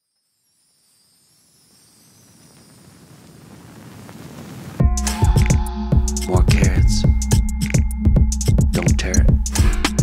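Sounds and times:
background music: 4.8s - 10.0s.

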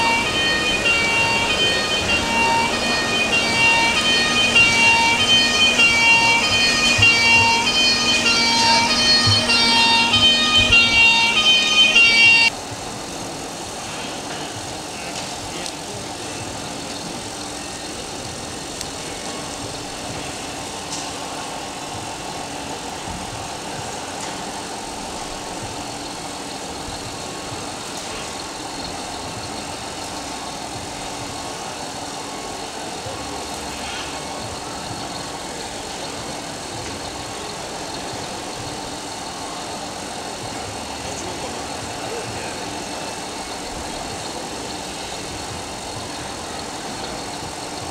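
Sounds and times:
hall noise: 0.0s - 47.9s
music: 0.0s - 47.9s.

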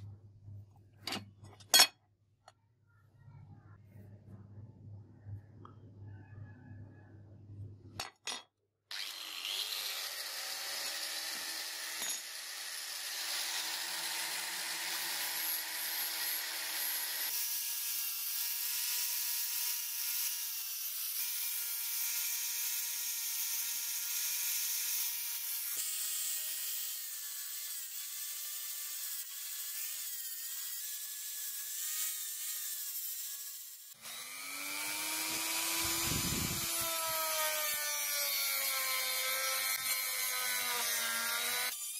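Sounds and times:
angle grinder grinding steel: 8.9s - 41.9s.

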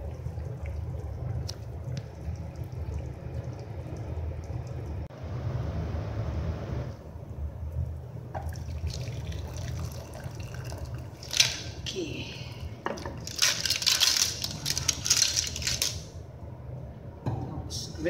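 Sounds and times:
broth pouring and splashing: 0.0s - 5.1s, 8.4s - 16.1s
steady low hum: 0.0s - 18.0s.

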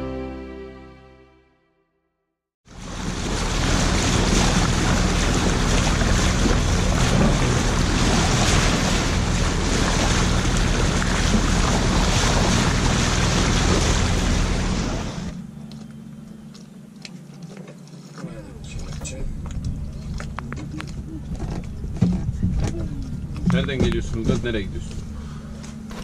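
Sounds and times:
water splashing along boat hull: 2.7s - 15.5s, 17.7s - 25.2s
low hum: 2.7s - 26.0s.

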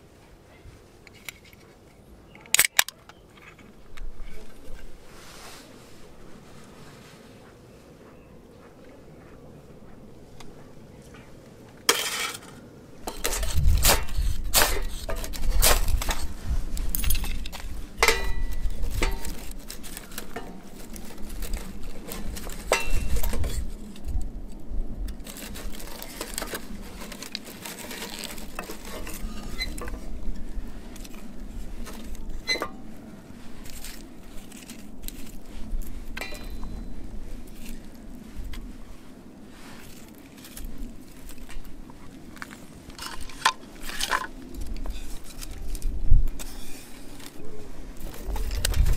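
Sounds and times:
small fire crackling: 12.9s - 48.9s
metal cookware clinking: 18.0s - 19.4s, 36.2s - 36.8s.

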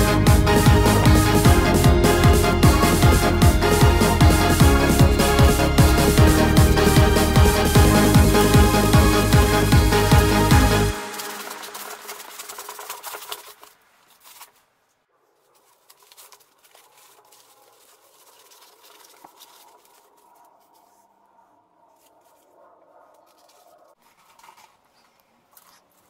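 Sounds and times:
polystyrene foam creaking and crackling: 10.8s - 21.2s.

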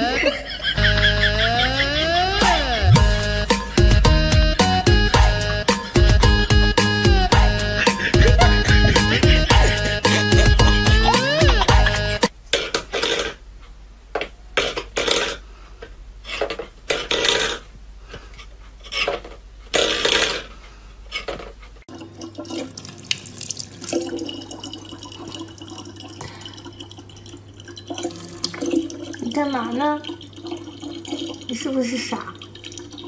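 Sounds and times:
low hum: 0.8s - 12.2s
clatters and scrapes: 12.5s - 13.4s, 14.6s - 21.8s
tap water running into bottle: 21.9s - 33.0s.

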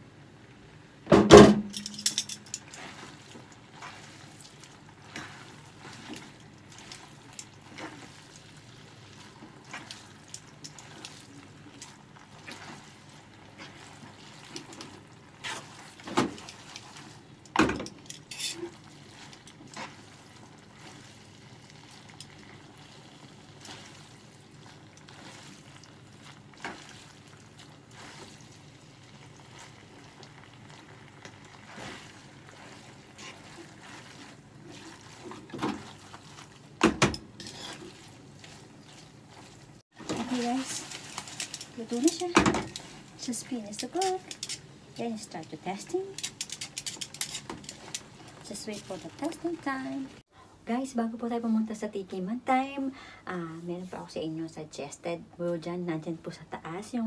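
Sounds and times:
frying sizzle: 0.0s - 50.3s
utensils scraping a frying pan: 17.9s - 20.2s, 31.7s - 36.5s, 37.2s - 38.7s, 40.0s - 44.7s, 45.8s - 49.6s.

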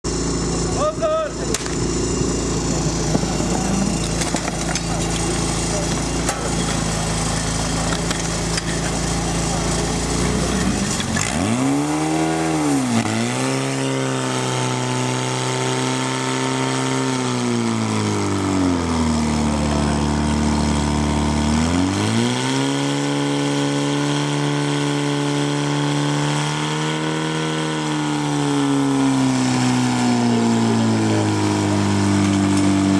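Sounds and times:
fire pump engine running hard: 0.1s - 32.9s.

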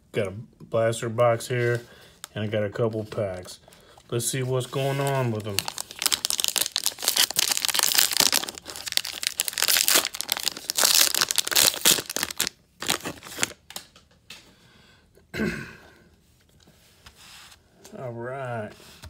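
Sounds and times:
plastic wrapping crinkling and tearing: 4.6s - 13.9s.

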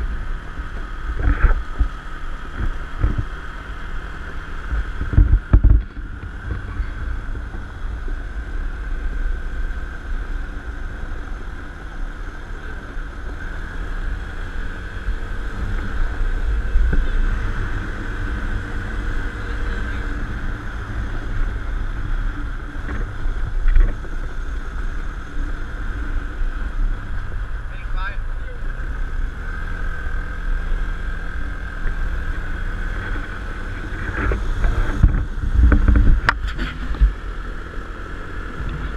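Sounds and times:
atv engine running: 0.0s - 38.9s
wind buffeting microphone: 31.6s - 38.9s.

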